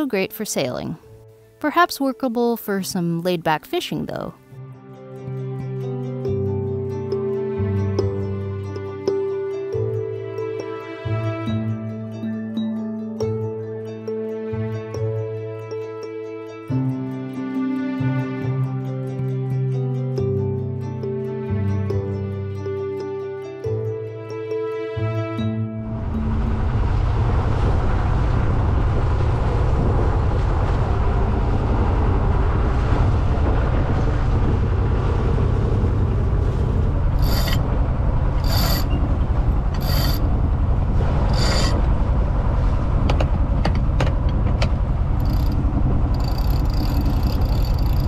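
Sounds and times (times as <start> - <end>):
boat engine rumbling: 25.8 - 48.0
sail winch cranking: 37.2 - 37.7, 38.3 - 40.3, 41.3 - 41.9, 45.2 - 48.0.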